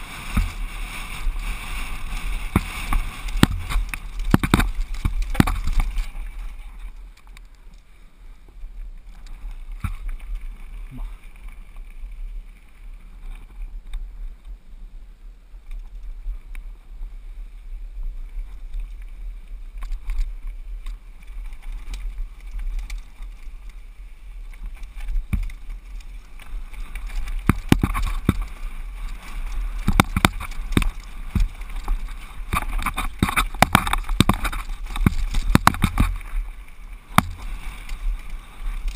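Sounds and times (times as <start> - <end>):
bike rattling and knocking: 0.0 - 0.8, 1.7 - 6.3, 26.8 - 36.4, 37.1 - 38.0
tyre noise on dirt: 0.0 - 7.8, 18.2 - 38.9
wind rumble on microphone: 0.0 - 38.9.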